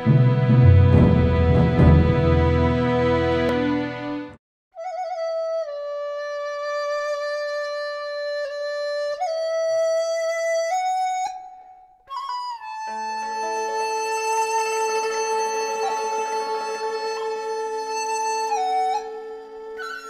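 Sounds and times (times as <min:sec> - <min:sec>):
fuller music passage: 0:00.0 - 0:04.4
slow solo melody: 0:12.1 - 0:20.0.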